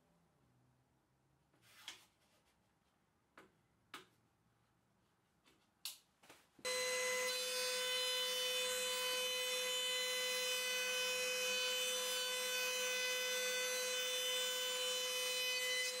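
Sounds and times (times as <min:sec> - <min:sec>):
router high whine: 0:06.7 - 0:16.0.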